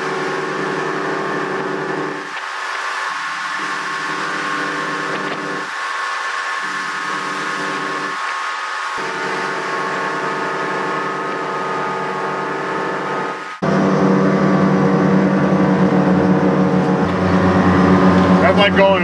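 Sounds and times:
outboard motors running: 0.0 - 19.0.

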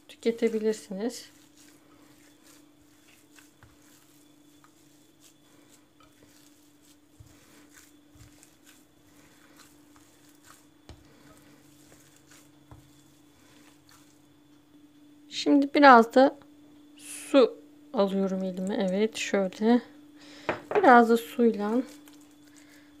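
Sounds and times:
hand kneading wet meat: 0.0 - 14.5, 20.9 - 23.0
faint steady hum: 0.0 - 23.0.

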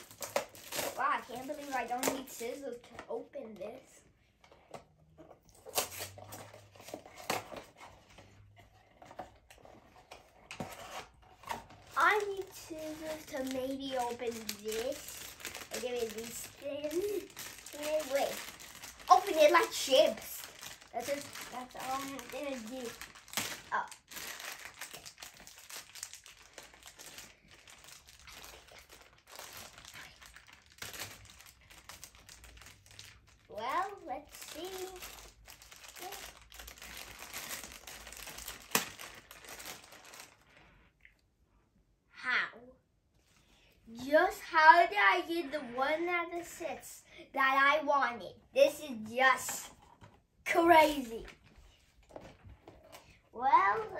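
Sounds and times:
foil bag crinkling: 0.0 - 2.8, 11.6 - 40.8.

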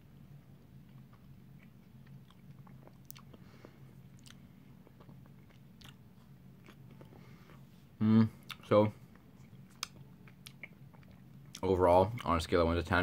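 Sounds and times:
chewing and mouth clicks: 0.8 - 3.4, 4.1 - 7.2, 8.5 - 12.4.

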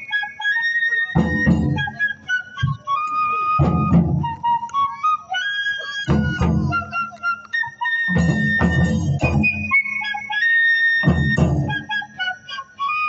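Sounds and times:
bamboo flute high melody: 0.0 - 13.0
taiko drums striking: 1.2 - 1.9, 3.6 - 4.4, 6.1 - 7.0, 8.1 - 9.7, 11.0 - 11.9.

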